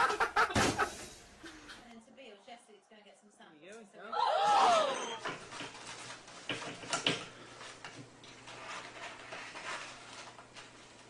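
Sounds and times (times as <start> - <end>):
room hiss: 0.0 - 1.9.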